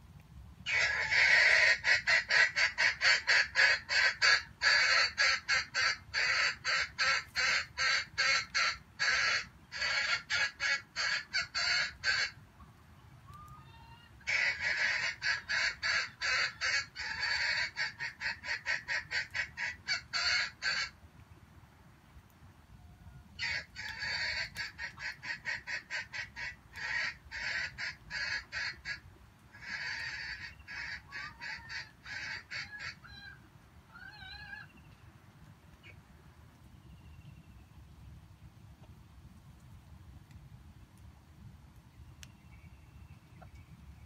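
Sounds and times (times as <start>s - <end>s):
junglefowl harsh calls: 0.7s - 12.4s, 13.4s - 21.0s, 23.4s - 34.8s.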